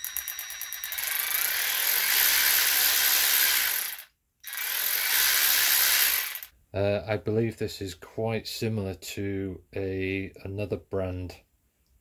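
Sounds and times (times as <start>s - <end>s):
cordless ratchet whirring: 0.0s - 6.5s.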